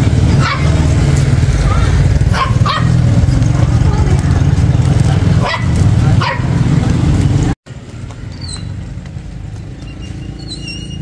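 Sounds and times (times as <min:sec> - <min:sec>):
loud low rumble: 0:00.0 - 0:07.6
dog barking: 0:00.4 - 0:00.8, 0:01.7 - 0:03.0, 0:05.4 - 0:06.6.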